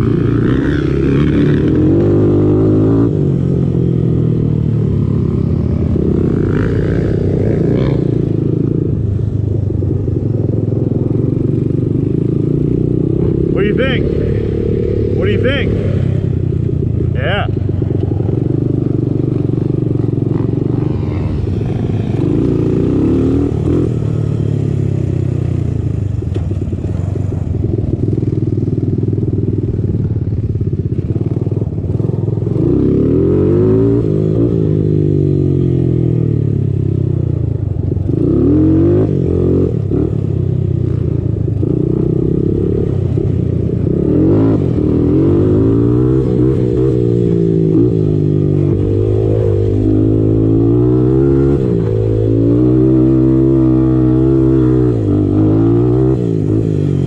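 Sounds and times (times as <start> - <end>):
quad engine revving: 0.0 - 3.3, 18.5 - 25.5, 32.5 - 36.4, 38.1 - 40.1, 41.6 - 57.0.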